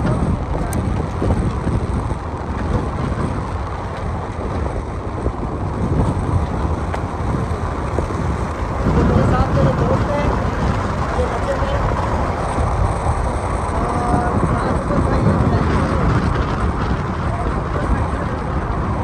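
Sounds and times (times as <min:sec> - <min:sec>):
tyre rumble on gravel road: 0:00.0 - 0:19.0
wind buffeting microphone: 0:00.0 - 0:19.0.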